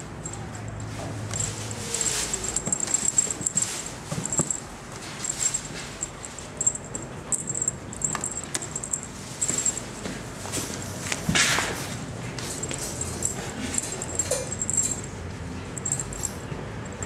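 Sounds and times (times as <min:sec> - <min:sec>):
kitten rustling and scuffling: 0:00.0 - 0:17.0.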